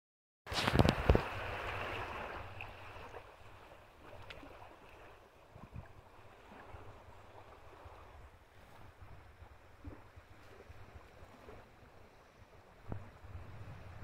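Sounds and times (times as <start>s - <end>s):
small waves washing: 0.5s - 14.0s
wind rumbling on microphone: 0.5s - 14.0s.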